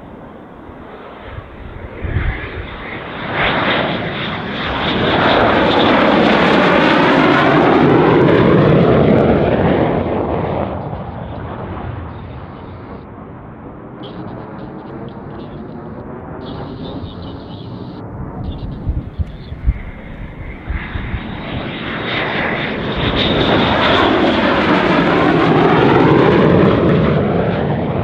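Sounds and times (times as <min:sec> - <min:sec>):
fighter jet flying past: 0:00.0 - 0:28.0.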